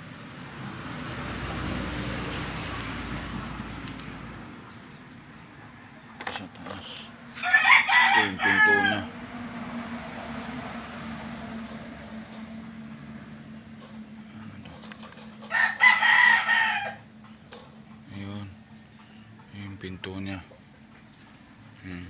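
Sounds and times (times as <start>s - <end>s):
rooster crowing: 7.3s - 10.0s, 15.3s - 17.2s.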